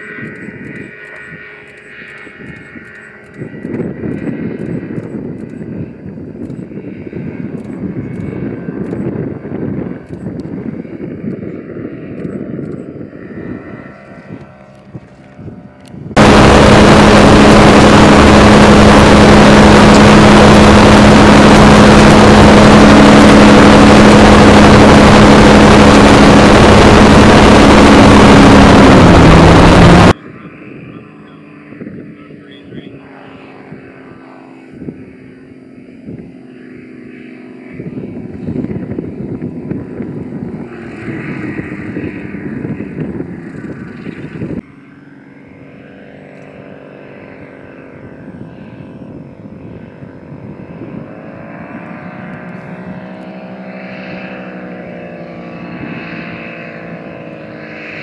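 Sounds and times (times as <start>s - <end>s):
faint distant engine: 0.0s - 58.0s
loud aircraft engine drone: 0.0s - 58.0s
low rumble of wind: 0.0s - 58.0s
rushing air: 16.1s - 30.2s.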